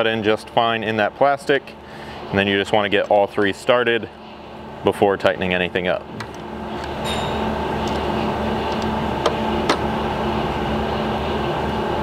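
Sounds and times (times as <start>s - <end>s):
fan-like hum: 0.0s - 12.0s
ringing clink: 7.0s - 7.5s.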